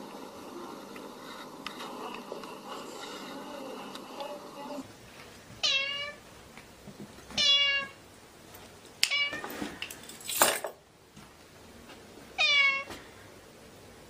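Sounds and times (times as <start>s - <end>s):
cat meowing: 5.6s - 6.2s, 7.4s - 8.0s, 12.4s - 12.9s.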